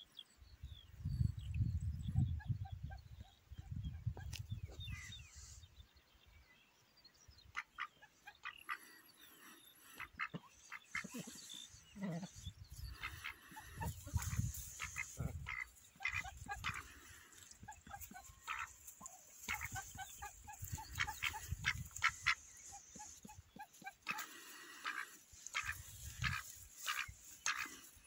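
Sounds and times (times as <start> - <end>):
wind rumble on microphone: 0.5 - 5.4, 13.7 - 15.5, 19.6 - 22.3
soft low duck calls: 7.5 - 28.0
bills pecking at ground: 8.6 - 28.0.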